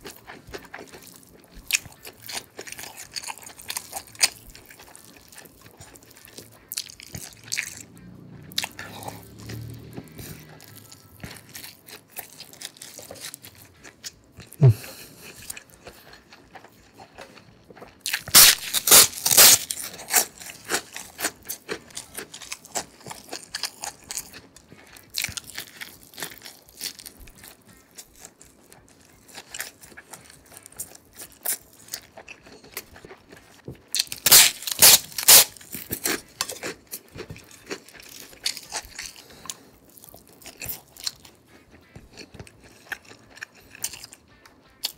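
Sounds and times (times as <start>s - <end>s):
person chewing: 0.0s - 44.9s
crisp crunching bites: 18.1s - 24.4s, 34.0s - 39.2s.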